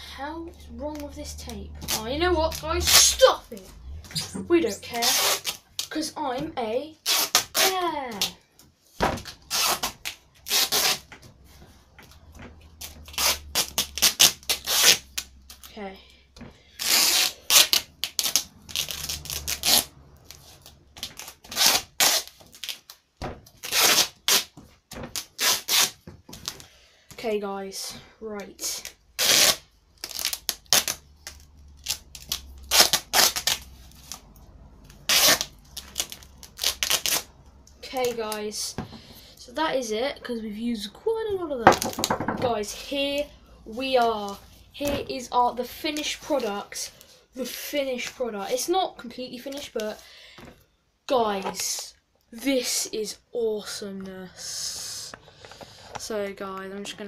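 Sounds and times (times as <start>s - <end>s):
tape crackling: 0.3s - 15.8s, 16.4s - 26.8s, 28.4s - 40.4s, 41.3s - 47.2s
duct tape ripping off roll: 0.9s - 6.0s, 7.0s - 8.4s, 9.2s - 11.2s, 12.8s - 15.7s, 16.7s - 26.7s, 28.7s - 38.4s.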